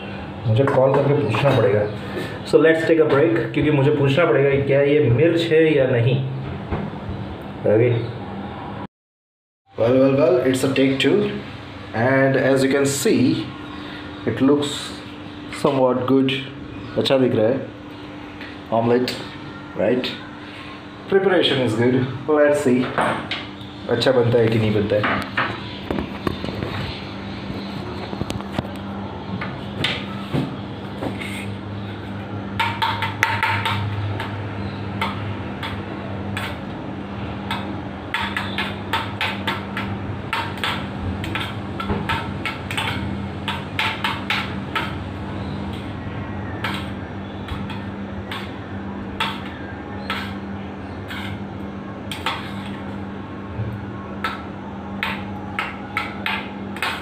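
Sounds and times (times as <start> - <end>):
utensil clinking against metal bowl: 37.5 - 45.0.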